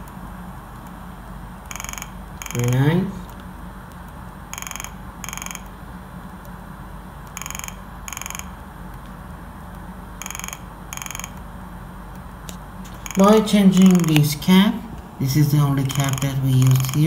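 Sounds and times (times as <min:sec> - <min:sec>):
piezo buzzer ringing: 0:01.6 - 0:02.9, 0:04.5 - 0:05.7, 0:07.4 - 0:08.6, 0:10.2 - 0:11.4, 0:12.9 - 0:14.2, 0:15.9 - 0:17.0.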